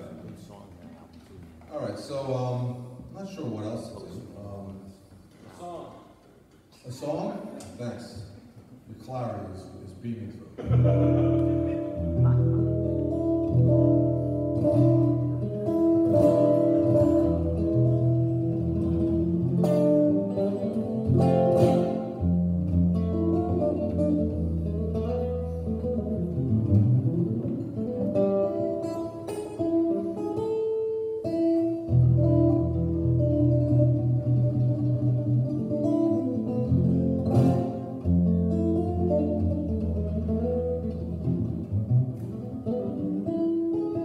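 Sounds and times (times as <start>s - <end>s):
solo guitar playing: 10.6s - 44.0s.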